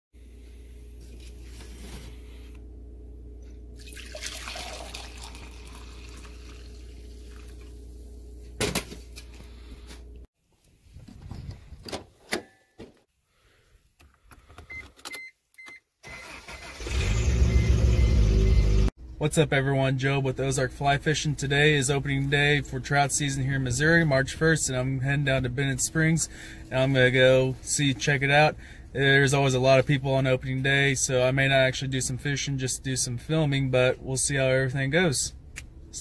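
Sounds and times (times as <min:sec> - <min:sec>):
steady low hum: 0:00.2 - 0:10.3
coffee pouring into a mug: 0:03.8 - 0:07.8
car engine cranking and running: 0:16.1 - 0:18.9.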